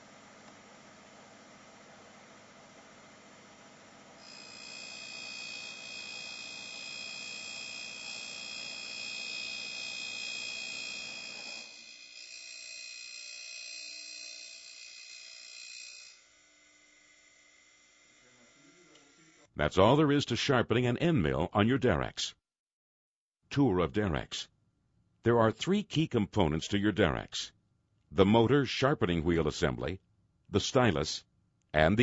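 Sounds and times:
grinding machine running: 4.2 - 12.8
grinding wheel high-pitched whine: 4.2 - 19.4.

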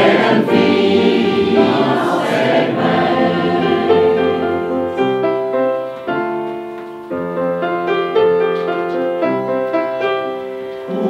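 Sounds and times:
choir singing: 0.0 - 5.5
piano chords: 0.0 - 11.0.

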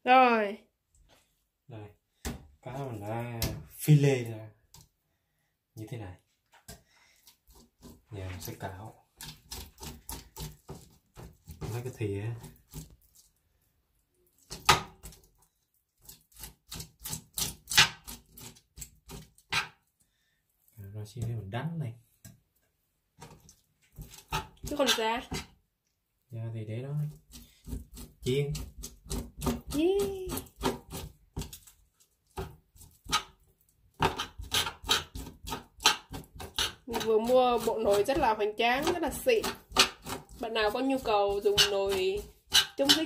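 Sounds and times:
kitchen utensils knocking and clattering: 34.0 - 43.0.

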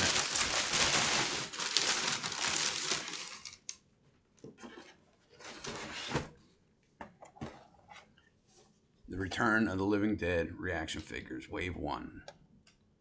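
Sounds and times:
packing paper crinkling: 0.0 - 3.7.

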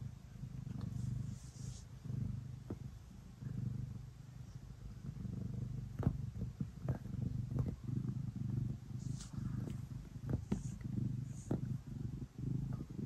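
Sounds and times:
cat purring: 0.0 - 13.0.

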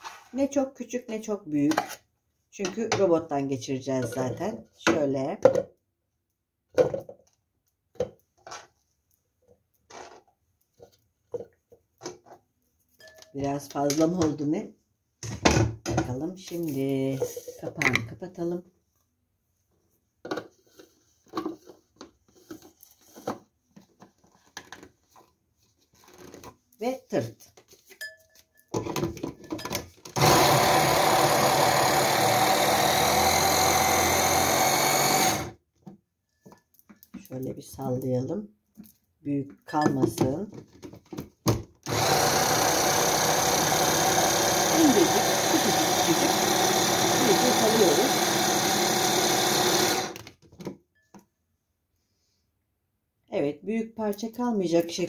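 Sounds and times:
electric chopper motor running: 30.2 - 35.6, 41.9 - 50.2.

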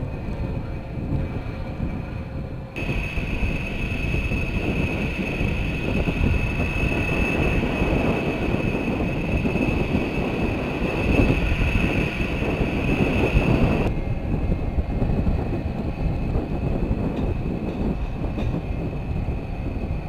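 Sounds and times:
jet engines whining and rumbling: 0.0 - 20.0.

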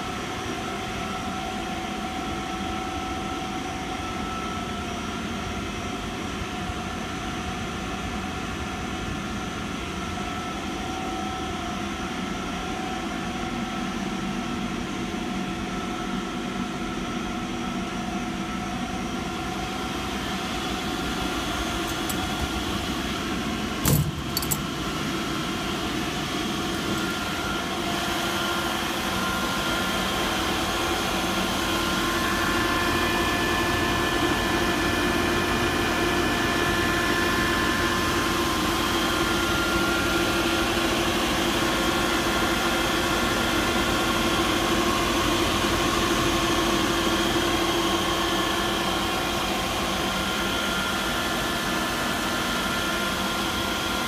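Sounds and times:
air compressor droning: 18.9 - 32.9
brief rattle: 23.8 - 24.7.

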